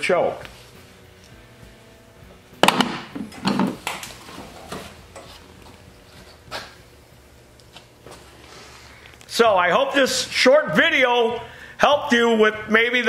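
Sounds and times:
faint steady hum: 0.4 - 13.0
sharp knocks: 2.6 - 3.8.

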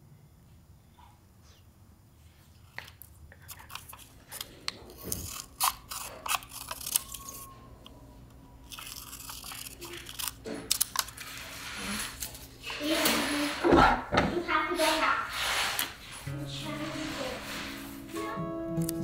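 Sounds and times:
scissors snipping paper: 3.5 - 7.5, 8.7 - 13.2
paper rustling: 8.7 - 13.7.

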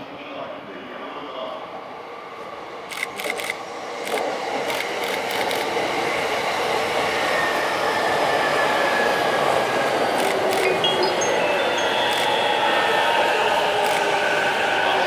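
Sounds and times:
train passing rumble: 0.0 - 15.0.

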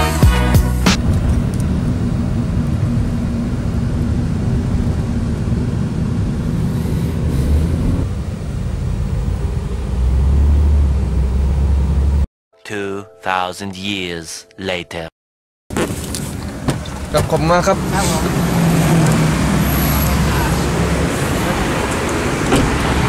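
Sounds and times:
car engine and road noise: 0.8 - 12.3, 15.7 - 23.0.

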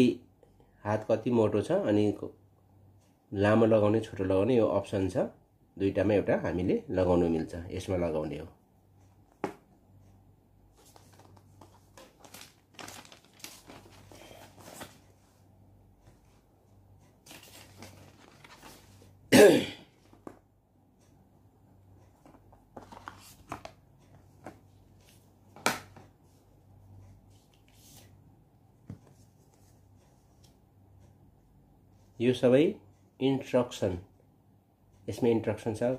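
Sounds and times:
paper packaging rustling: 10.8 - 15.4, 17.2 - 19.1, 22.2 - 23.8.

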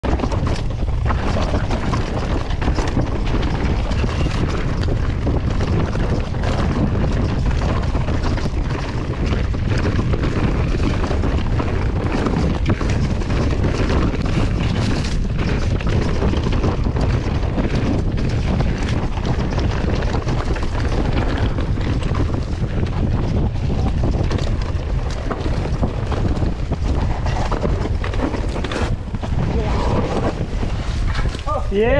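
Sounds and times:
bike knocks and rattles: 0.0 - 31.9
tyre noise on dirt: 0.0 - 31.9
wind buffeting microphone: 0.0 - 31.9.

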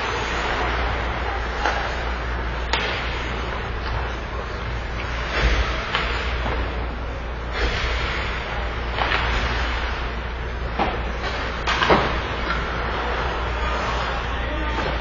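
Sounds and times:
skates and sticks scraping ice: 0.0 - 6.8, 7.5 - 10.1, 11.2 - 15.0
steady low hum: 0.0 - 15.0.

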